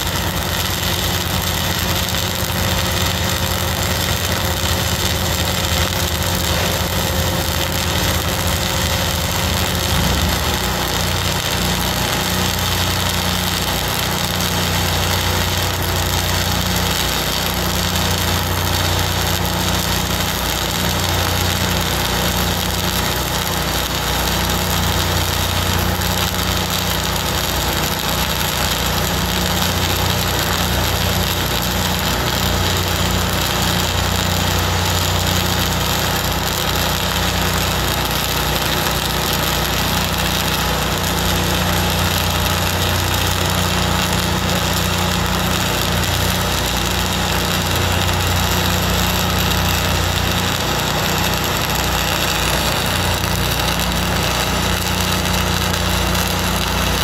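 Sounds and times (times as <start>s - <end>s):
welder engine humming: 0.0s - 57.0s
welding arc hissing and crackling: 0.0s - 57.0s.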